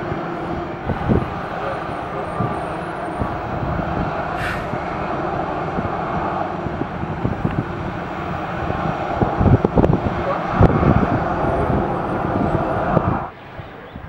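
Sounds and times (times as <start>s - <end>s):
jet engines rumbling: 0.0s - 14.0s
brief hiss: 4.4s - 4.7s.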